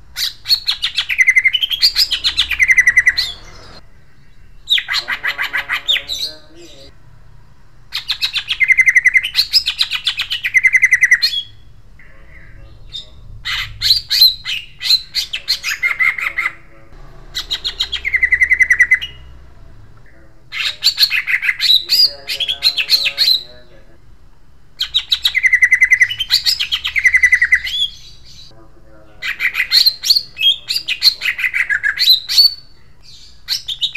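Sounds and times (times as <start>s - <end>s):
bird singing harsh phrases: 0.0s - 7.0s, 7.8s - 24.1s, 24.8s - 33.9s.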